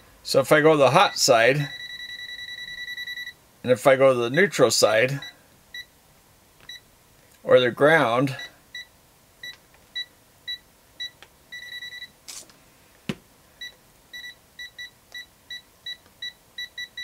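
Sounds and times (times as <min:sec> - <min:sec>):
multimeter high beeps: 0:01.0 - 0:03.4, 0:08.4 - 0:12.2, 0:13.6 - 0:17.0.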